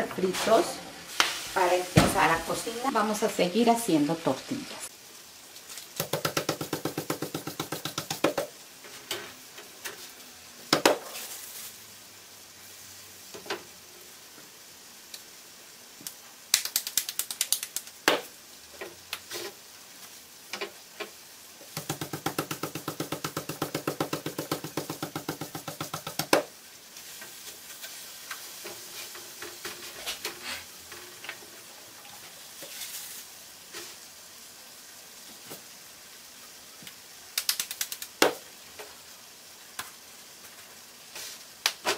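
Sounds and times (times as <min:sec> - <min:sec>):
hands slapping tortilla dough: 0:05.9 - 0:08.5, 0:16.5 - 0:18.3, 0:21.7 - 0:26.5, 0:37.4 - 0:38.4, 0:41.6 - 0:41.9.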